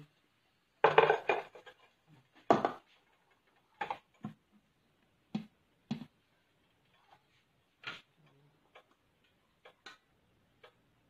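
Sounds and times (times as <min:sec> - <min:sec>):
cookware clinking and knocking: 0:00.8 - 0:01.8.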